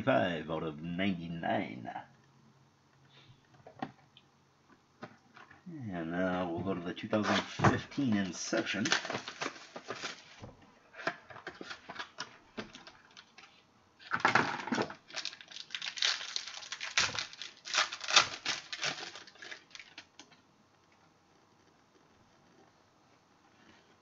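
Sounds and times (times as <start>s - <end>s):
packaging rustling and crinkling: 7.1s - 20.3s
cardboard tearing: 15.1s - 20.0s.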